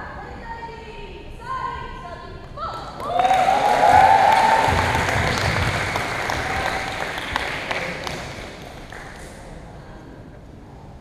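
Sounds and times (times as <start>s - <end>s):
spectators applauding: 3.0s - 9.3s.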